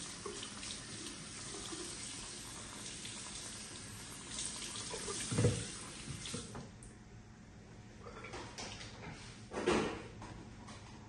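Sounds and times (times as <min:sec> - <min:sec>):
tap water running into basin: 0:00.0 - 0:06.7.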